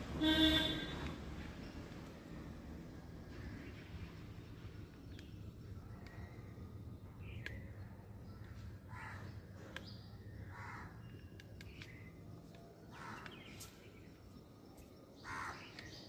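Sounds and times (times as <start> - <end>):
outdoor background noise: 0.0 - 16.0
crows cawing: 8.9 - 9.4, 10.5 - 11.0, 12.9 - 13.3, 15.2 - 15.7.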